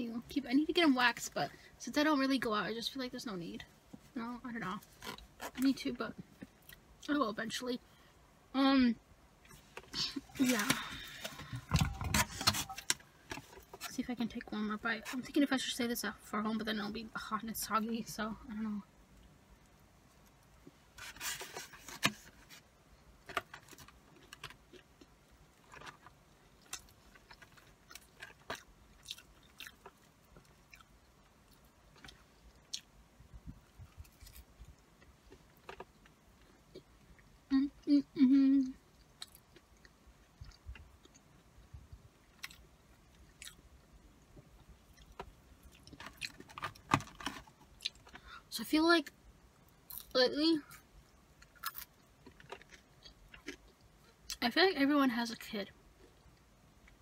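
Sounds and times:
chewing crunchy fries: 23.4s - 32.9s, 38.7s - 43.8s, 44.6s - 48.2s, 49.9s - 54.4s
person humming: 37.5s - 38.8s.

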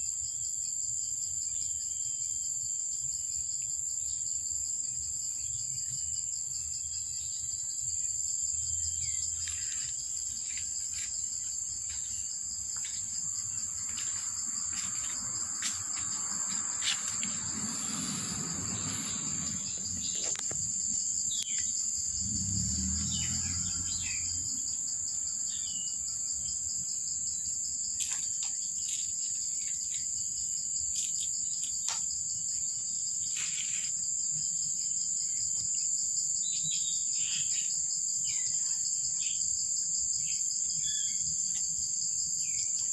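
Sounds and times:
insects shrilling: 8.0s - 26.0s, 33.1s - 34.1s
low rumble: 16.4s - 21.2s, 21.9s - 24.6s.

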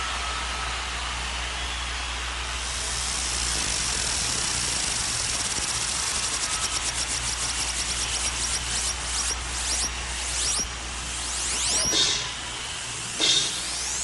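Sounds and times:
pulsing high synth tone: 3.1s - 12.4s, 13.2s - 14.0s.

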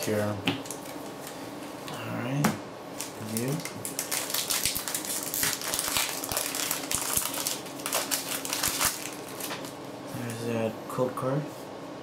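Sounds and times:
foil wrapper crinkling and tearing: 3.0s - 9.8s.

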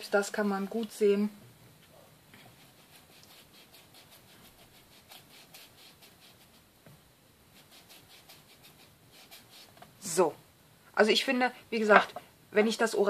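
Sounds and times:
blending tool scratching cardstock: 2.6s - 6.6s.

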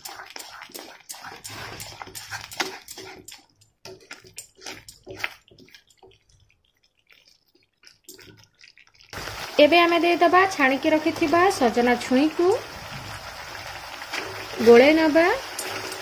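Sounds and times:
wooden spatula scraping thick paste: 0.0s - 9.0s.

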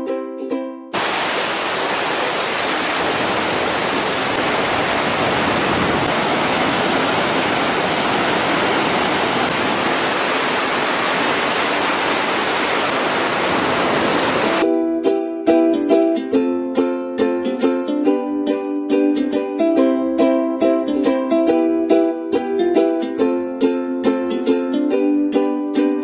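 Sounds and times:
plucked music notes: 0.0s - 1.0s, 14.6s - 26.0s
water rushing over rocks: 1.0s - 14.6s.

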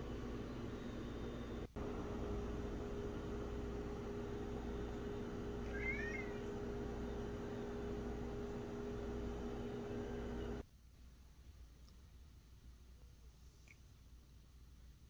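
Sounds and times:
background hum: 0.0s - 15.0s
cat chirp: 5.6s - 6.5s.

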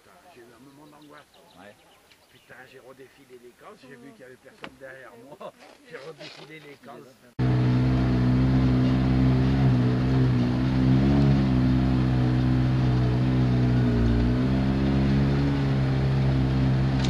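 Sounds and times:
quad bike engine running: 7.4s - 17.0s.

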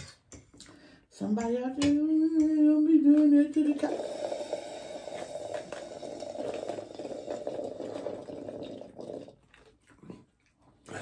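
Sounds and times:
slurping through a straw: 3.6s - 11.0s.

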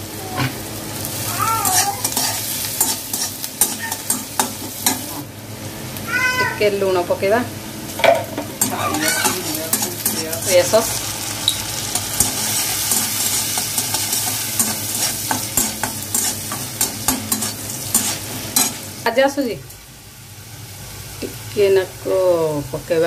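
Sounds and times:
onion sizzling in butter: 0.0s - 23.0s
spatula scraping a pan: 1.6s - 5.0s, 8.6s - 11.0s, 11.9s - 18.9s.

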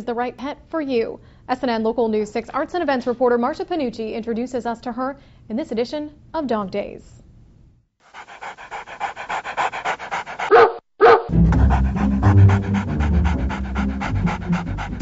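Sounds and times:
dog panting: 8.0s - 15.0s.

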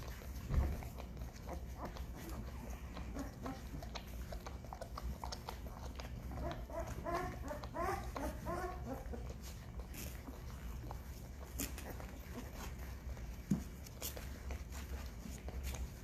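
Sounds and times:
puppies whimpering: 0.0s - 16.0s.

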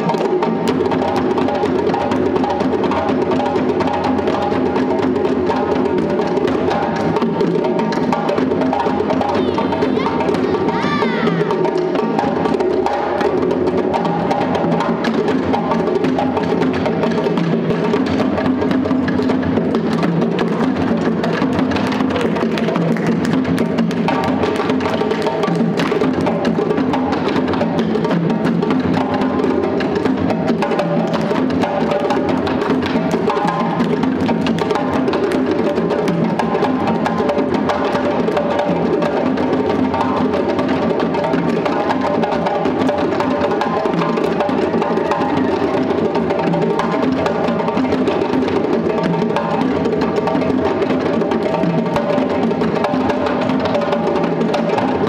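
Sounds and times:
hand drums playing rhythm: 0.0s - 55.0s.

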